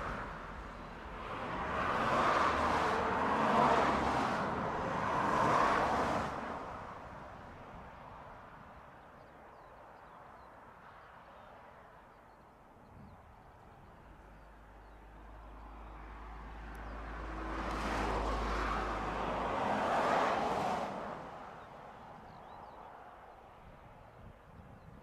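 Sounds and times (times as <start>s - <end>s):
road vehicle passing: 0.0s - 7.4s, 14.1s - 23.4s.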